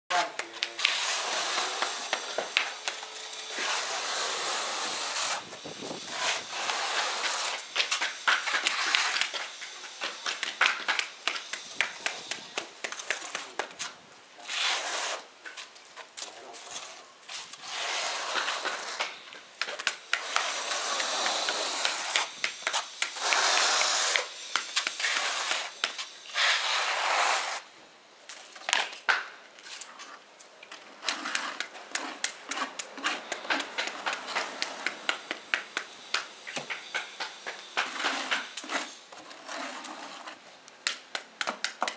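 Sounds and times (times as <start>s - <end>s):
trowel scraping mortar: 0.1s - 13.7s, 14.4s - 15.6s, 16.2s - 27.6s, 30.8s - 40.5s
mosaic tiles clicking and knocking: 40.7s - 41.9s.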